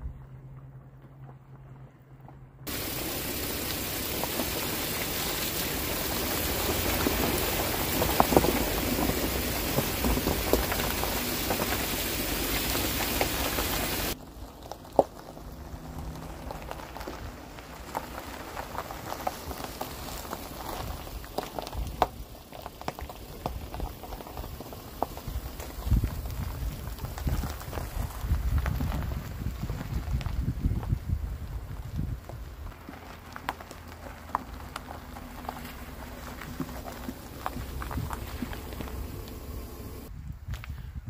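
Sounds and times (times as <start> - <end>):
heavy rain falling: 2.7 - 14.2, 32.7 - 40.1.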